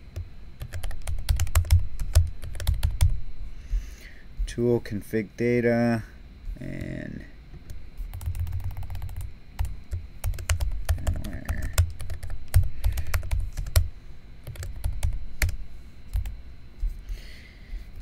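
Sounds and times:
typing on computer keyboard: 0.6s - 3.1s, 8.1s - 16.3s.

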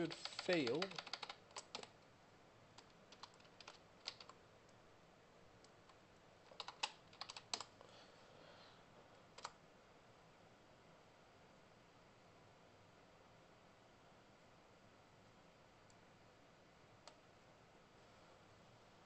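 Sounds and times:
keyboard typing: 0.0s - 2.0s, 2.8s - 4.4s, 5.6s - 7.7s.

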